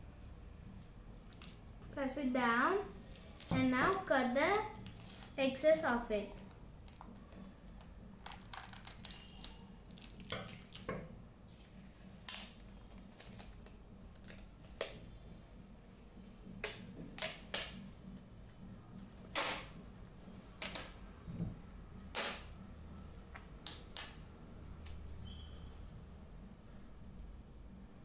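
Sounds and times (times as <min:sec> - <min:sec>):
tape roll crackling: 0:06.3 - 0:10.9, 0:11.5 - 0:15.0.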